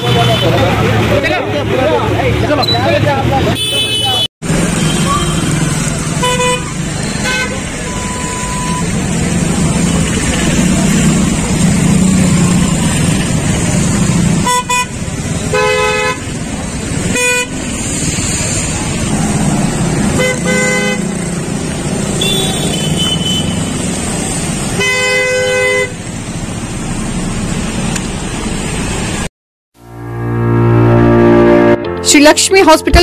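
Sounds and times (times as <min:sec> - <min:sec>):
road traffic on wet street: 0:00.0 - 0:30.0
car horns honking: 0:02.6 - 0:08.9, 0:14.4 - 0:16.4, 0:17.0 - 0:17.7, 0:20.1 - 0:21.4, 0:22.1 - 0:23.8, 0:24.8 - 0:26.0.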